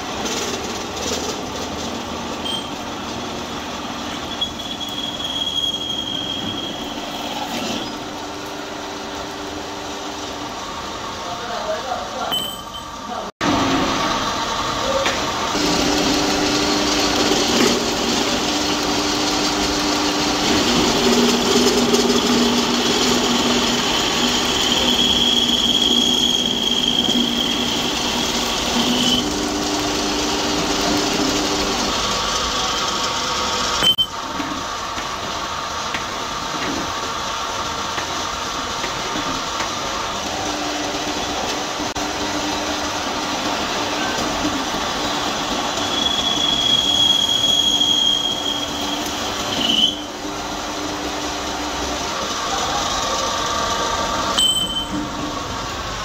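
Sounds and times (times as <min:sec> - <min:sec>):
metal lathe humming: 0:15.4 - 0:34.0
high whine of tool cutting steel: 0:15.5 - 0:34.1, 0:45.1 - 0:50.5.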